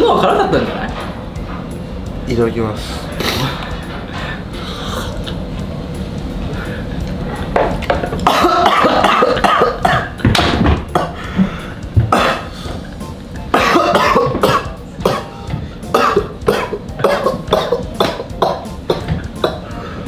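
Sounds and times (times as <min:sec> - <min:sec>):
man clearing throat: 0:08.2 - 0:10.2, 0:10.9 - 0:11.2, 0:12.1 - 0:12.6, 0:13.5 - 0:19.8
man coughing: 0:08.2 - 0:10.2, 0:10.9 - 0:11.2, 0:12.1 - 0:12.6, 0:13.5 - 0:19.8.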